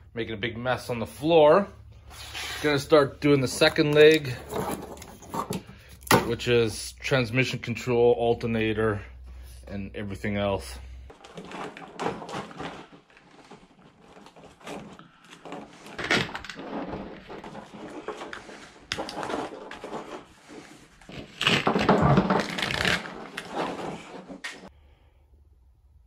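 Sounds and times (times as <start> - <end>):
plastic loom rustling and crackling: 11.1 - 24.7.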